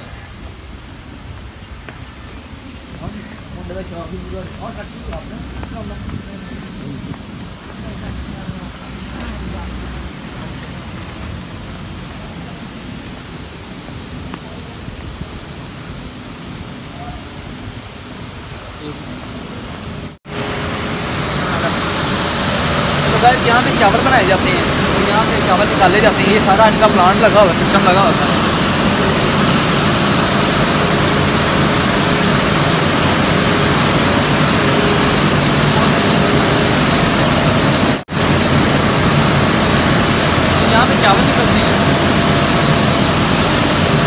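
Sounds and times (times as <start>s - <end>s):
faint hum: 0.0s - 44.0s
mill machinery rushing: 17.6s - 44.0s.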